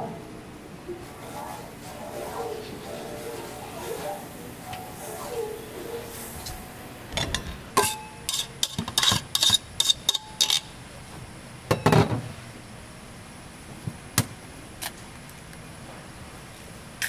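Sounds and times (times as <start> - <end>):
metal utensils and dishes clinking: 7.2 - 10.7.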